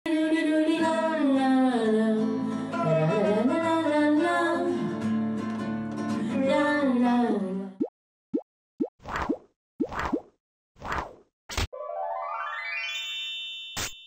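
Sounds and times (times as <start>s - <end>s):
acoustic guitar: 0.7s - 7.2s.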